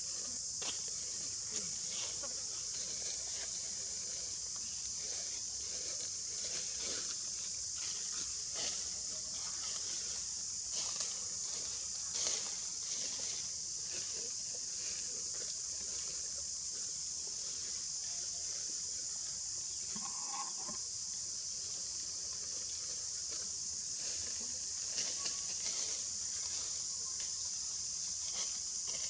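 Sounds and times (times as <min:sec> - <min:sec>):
insect chorus buzzing: 0:00.0 - 0:29.0
faint animal call: 0:19.8 - 0:20.8.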